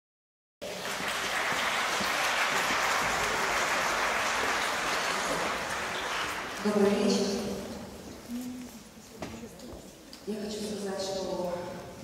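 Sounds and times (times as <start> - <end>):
audience applauding: 0.6 - 6.7.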